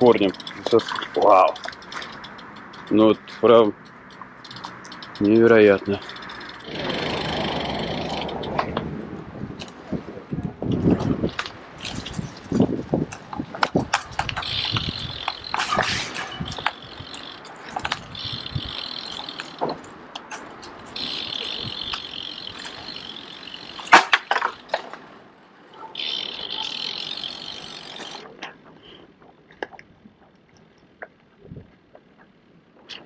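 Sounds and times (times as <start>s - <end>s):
bicycle freewheel ticking: 0.0s - 8.8s, 13.9s - 24.8s, 25.9s - 29.5s.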